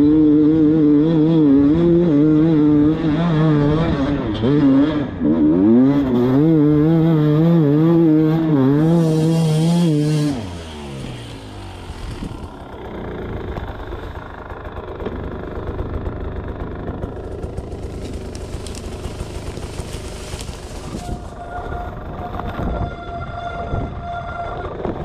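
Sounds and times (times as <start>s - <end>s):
dirt bike engine revving: 0.0s - 25.0s.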